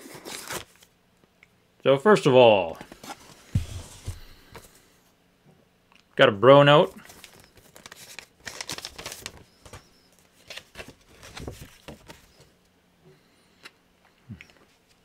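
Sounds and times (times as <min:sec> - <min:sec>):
paper rustling and crinkling: 0:00.0 - 0:00.9, 0:02.8 - 0:04.8, 0:07.0 - 0:12.5.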